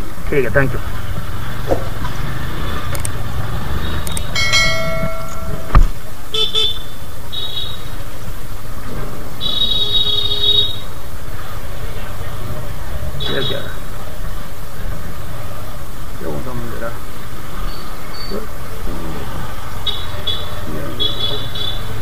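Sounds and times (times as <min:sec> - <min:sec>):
wind: 0:00.0 - 0:22.0
motorcycle engine rumble: 0:00.8 - 0:07.2
vehicle horns honking: 0:04.3 - 0:07.9, 0:19.9 - 0:22.0
sharp knock: 0:04.4 - 0:05.9.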